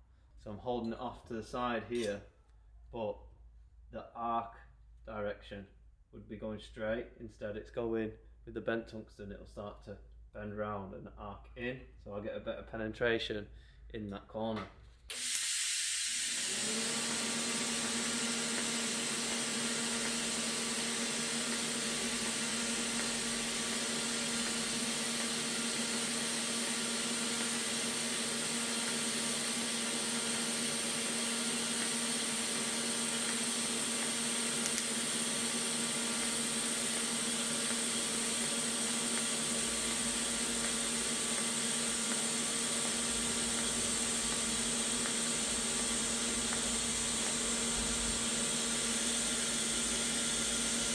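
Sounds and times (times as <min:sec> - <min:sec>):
welding arc hissing: 0:15.1 - 0:17.0, 0:17.6 - 0:50.9.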